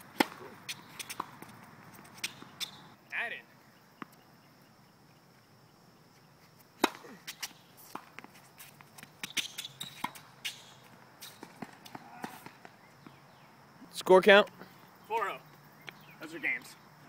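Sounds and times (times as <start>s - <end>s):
racket hitting ball: 0.0s - 2.8s, 6.8s - 8.3s
shoes squeaking on court: 0.0s - 3.0s, 6.1s - 13.4s.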